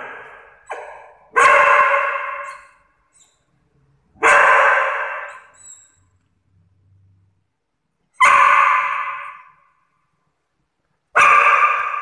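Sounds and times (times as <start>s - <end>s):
small dog barking: 0.0s - 2.7s, 4.2s - 5.6s, 8.2s - 9.5s, 11.1s - 12.0s.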